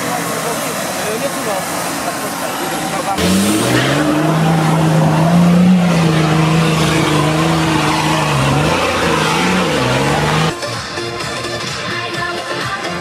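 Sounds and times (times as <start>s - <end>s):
engine revving under load: 3.1s - 10.5s.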